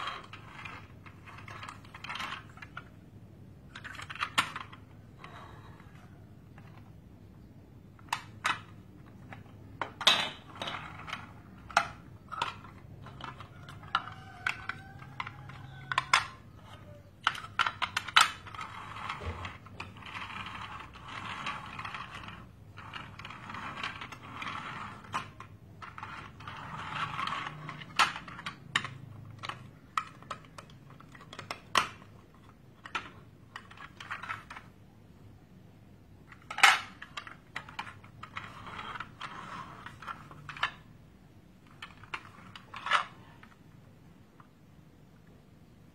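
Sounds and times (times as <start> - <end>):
plastic toys scraping: 0.0 - 35.3, 36.0 - 44.6
plastic toys clicking and knocking: 0.0 - 45.4.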